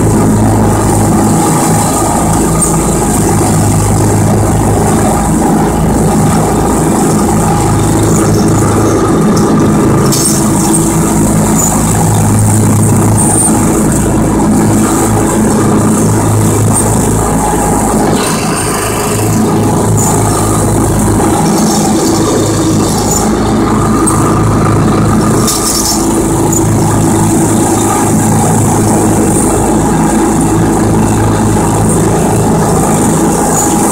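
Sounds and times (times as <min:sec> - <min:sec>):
lawn tractor engine running: 0:00.0 - 0:33.9.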